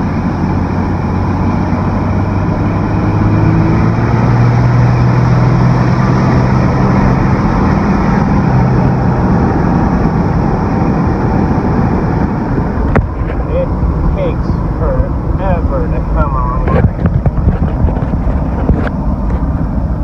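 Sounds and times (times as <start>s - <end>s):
diesel truck engine drone: 0.0s - 20.0s
road noise: 0.0s - 20.0s.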